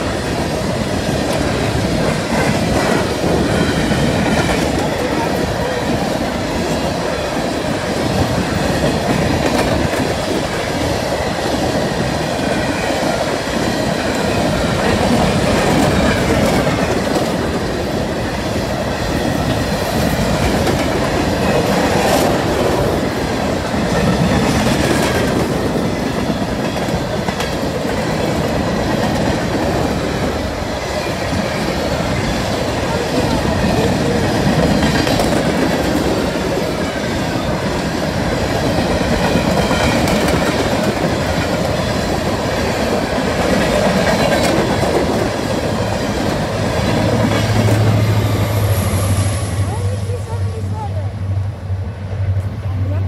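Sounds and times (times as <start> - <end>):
wheels clacking over rails: 0.0 - 48.7
freight train rumbling past: 0.0 - 53.0.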